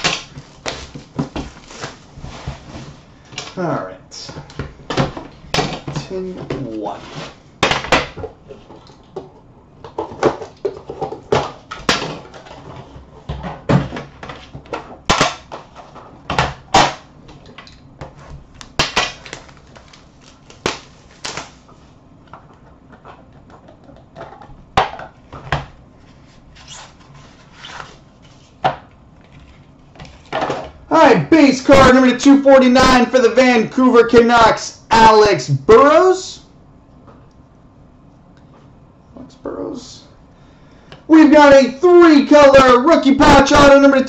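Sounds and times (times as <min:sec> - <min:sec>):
plastic wrap crinkling: 0:00.0 - 0:03.0, 0:18.6 - 0:21.8.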